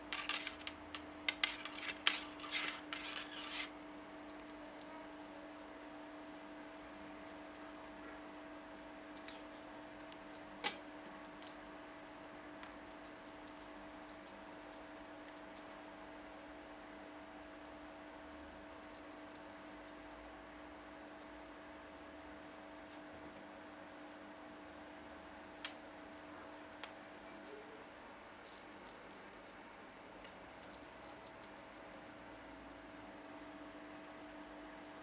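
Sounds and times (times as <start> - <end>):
cat toy rustling and jingling: 0.0 - 5.7, 28.5 - 32.1
steady low hum: 0.0 - 35.0.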